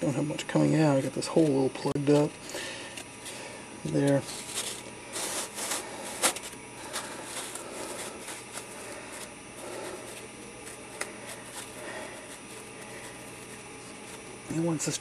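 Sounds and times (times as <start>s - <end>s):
foam rustling and scraping: 3.2s - 14.4s.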